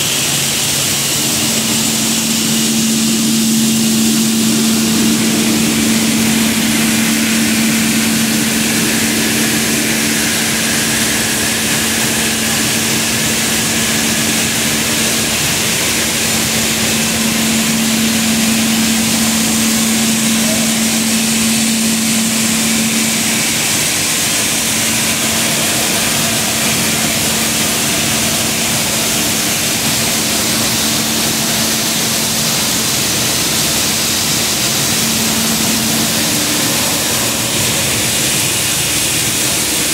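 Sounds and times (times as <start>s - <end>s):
industrial machinery din: 0.0s - 39.9s
steady low hum: 0.0s - 39.9s.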